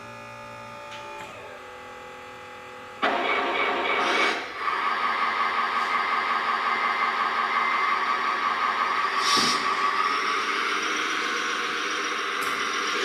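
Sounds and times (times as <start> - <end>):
hydraulic pump whining: 3.0 - 13.0.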